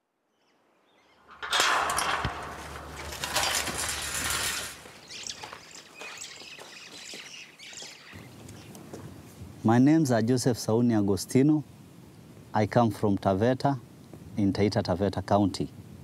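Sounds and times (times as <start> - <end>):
metal gate rattling and scraping: 1.2 - 5.5
light clicks of metal gate: 1.3 - 4.8.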